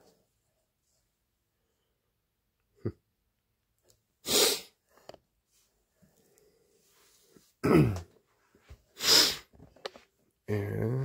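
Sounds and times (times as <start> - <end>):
person sneezing: 4.2 - 4.8, 9.0 - 9.5.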